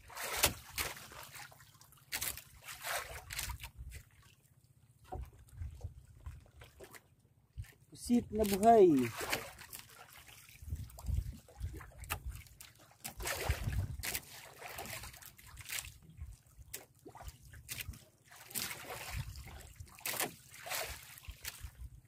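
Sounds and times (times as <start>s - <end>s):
water splashing against boat hull: 0.0s - 22.0s.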